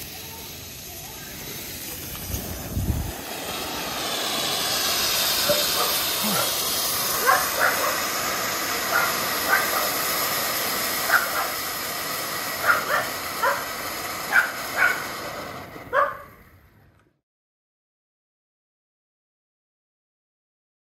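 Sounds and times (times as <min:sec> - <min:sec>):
firework hissing: 0:00.0 - 0:17.1
dog barking: 0:05.4 - 0:06.6, 0:07.2 - 0:08.1, 0:08.9 - 0:10.0, 0:11.1 - 0:11.6, 0:12.6 - 0:13.7, 0:14.3 - 0:15.0, 0:15.9 - 0:16.3.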